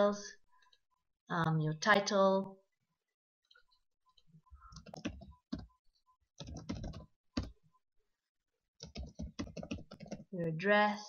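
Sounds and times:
typing on computer keyboard: 4.7 - 5.7, 6.4 - 7.5, 8.8 - 10.3.

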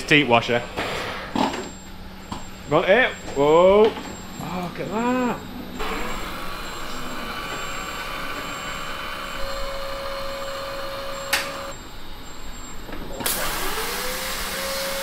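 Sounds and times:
robot arm motor whirr: 13.2 - 15.0.

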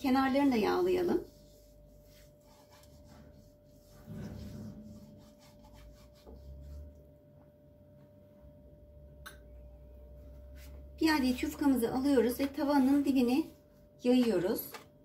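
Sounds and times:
pastry brush rubbing a frying pan: 0.0 - 7.0.

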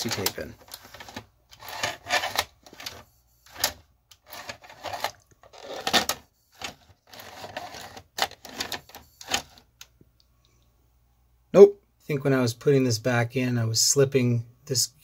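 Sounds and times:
tape loading mechanism clattering: 0.0 - 9.6.

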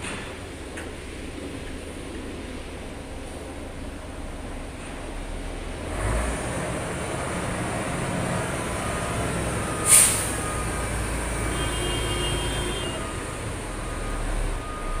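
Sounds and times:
diesel truck engine rumbling: 0.0 - 15.0
air brake hiss: 9.8 - 10.6.

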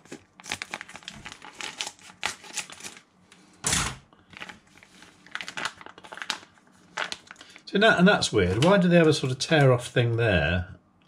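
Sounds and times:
plastic packet crinkling: 0.0 - 3.1, 4.2 - 7.6.

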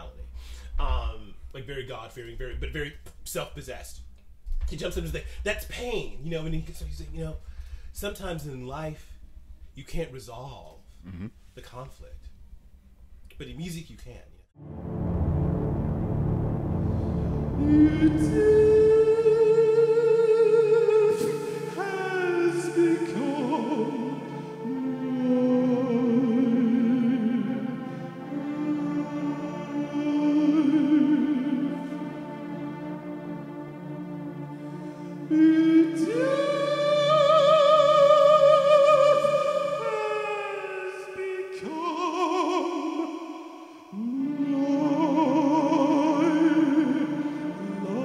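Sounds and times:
low keyboard drone: 14.6 - 37.1
man singing operatically: 17.5 - 32.1, 35.2 - 48.0.

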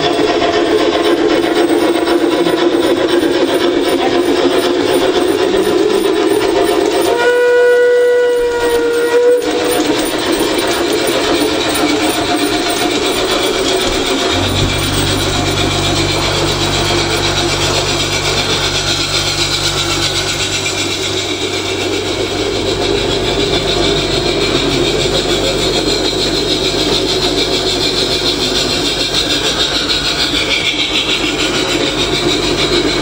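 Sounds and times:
model train wheels on rails: 0.0 - 33.0
electric motor hum: 9.2 - 26.8.

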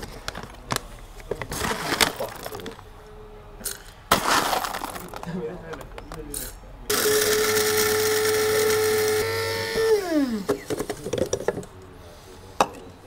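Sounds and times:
coffee grinder motor whirring: 6.9 - 10.6.

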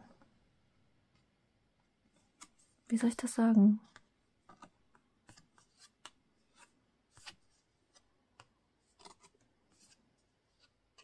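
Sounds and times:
cards rustling in hand: 3.9 - 11.0.

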